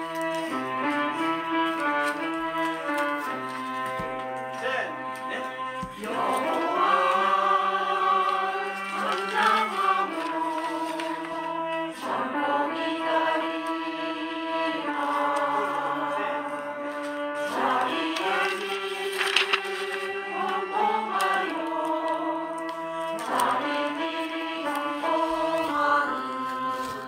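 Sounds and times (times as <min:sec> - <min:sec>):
choir singing a hymn: 0:05.5 - 0:27.0.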